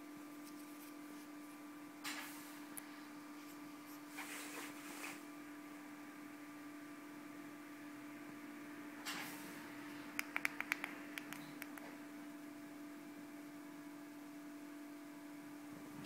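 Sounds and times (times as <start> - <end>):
steady electrical hum: 0.0 - 16.0
small sharp clicks: 10.2 - 11.9.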